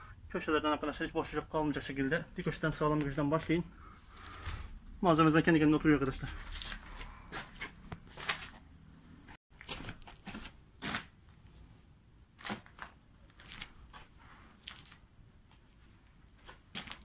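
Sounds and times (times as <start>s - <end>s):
boots scuffing on concrete: 6.1s - 8.7s, 16.4s - 17.0s.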